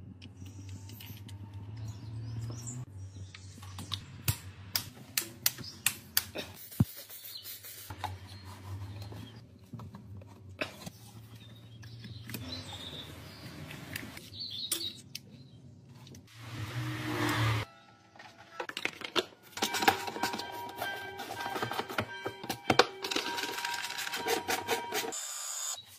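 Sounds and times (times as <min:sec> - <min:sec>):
rubbing and handling noises: 0:18.2 - 0:25.2.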